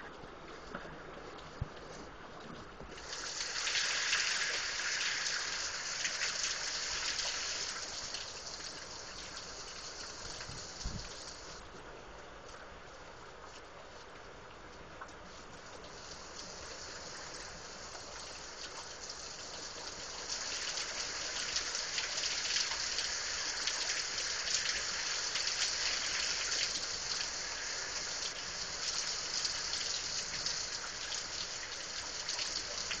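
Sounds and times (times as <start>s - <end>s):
ticks of nearby raindrops: 0.0s - 33.0s
heavy rain pouring: 3.0s - 11.6s, 15.6s - 33.0s.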